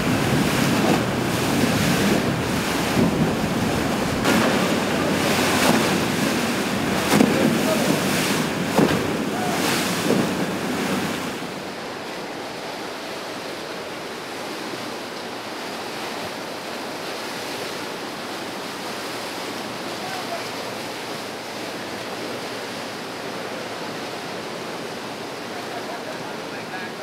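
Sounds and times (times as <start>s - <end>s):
wind buffeting the microphone: 0.0s - 11.7s
water splashing and rushing: 0.0s - 27.0s.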